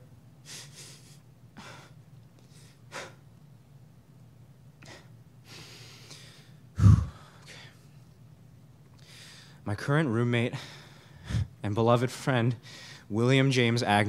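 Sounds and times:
sharp sniff into microphone: 0:00.4 - 0:01.2
man breathing and sniffing: 0:00.4 - 0:03.2, 0:04.8 - 0:08.0, 0:10.6 - 0:11.6.

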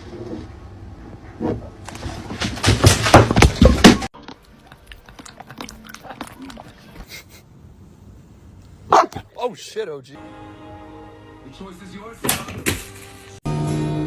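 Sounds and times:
cat licking plastic bottle: 0:04.3 - 0:07.0
cat lapping water from glass: 0:04.4 - 0:07.0.

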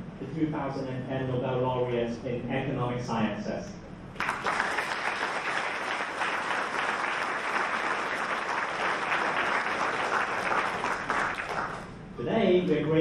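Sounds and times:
large audience applauding: 0:04.2 - 0:11.9.

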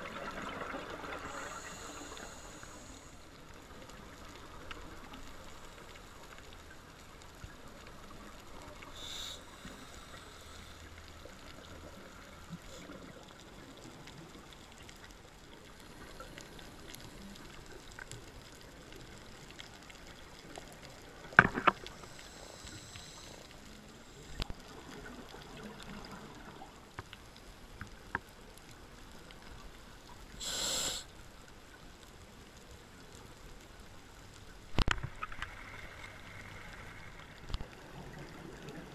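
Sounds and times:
low underwater hiss: 0:00.0 - 0:38.9
small clicks: 0:34.4 - 0:36.1.

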